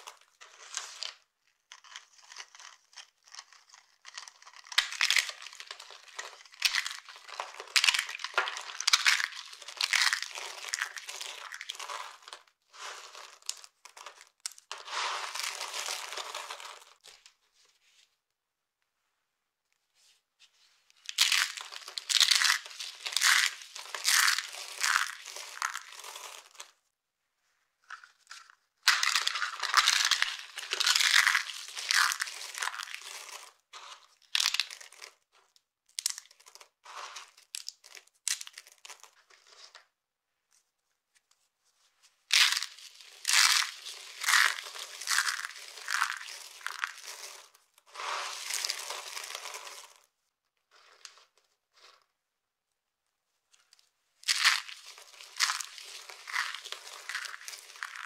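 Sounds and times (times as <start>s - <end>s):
dry soap flakes crunching: 0.0s - 17.2s, 21.1s - 26.8s, 27.9s - 39.8s, 42.3s - 50.1s, 54.2s - 58.0s.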